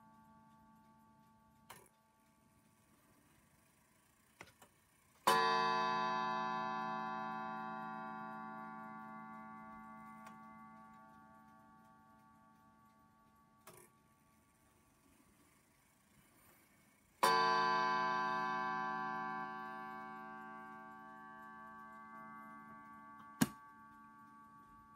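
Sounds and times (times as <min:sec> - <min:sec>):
faint clock clicks: 0:00.0 - 0:06.1, 0:06.7 - 0:24.9
clock gong strike: 0:05.3 - 0:11.2, 0:17.2 - 0:24.9.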